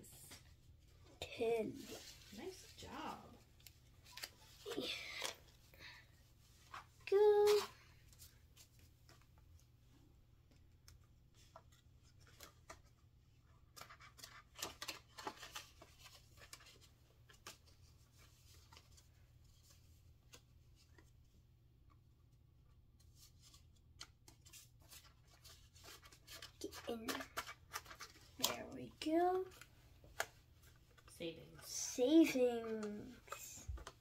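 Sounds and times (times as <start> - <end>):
plastic binder pocket crinkling: 13.6 - 20.4
paper bills rustling: 23.0 - 31.1.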